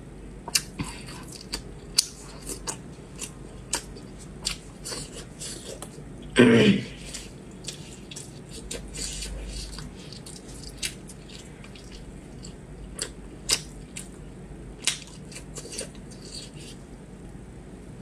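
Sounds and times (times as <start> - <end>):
sharp little clicks and snaps: 14.8 - 15.1.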